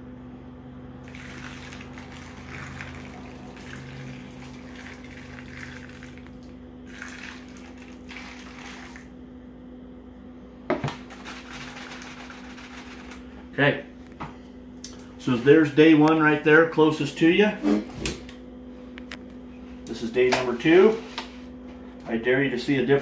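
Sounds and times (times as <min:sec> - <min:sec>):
water pouring onto grain: 0:01.0 - 0:09.1.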